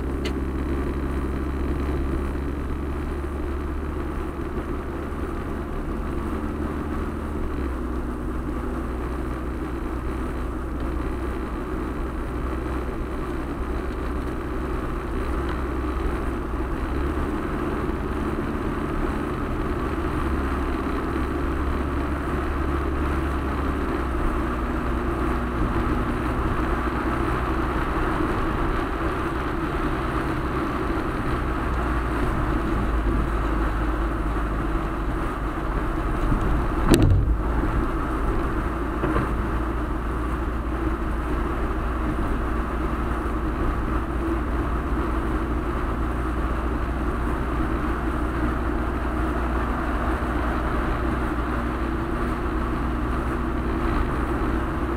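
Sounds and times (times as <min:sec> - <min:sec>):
car engine and road noise: 0:00.0 - 0:54.9
wheels thumping over tracks: 0:35.2 - 0:40.1.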